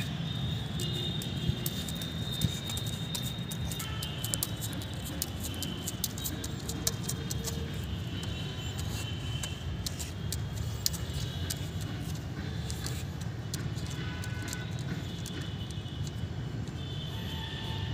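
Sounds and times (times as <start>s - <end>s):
dog claws clicking on tiles: 1.2s - 15.5s.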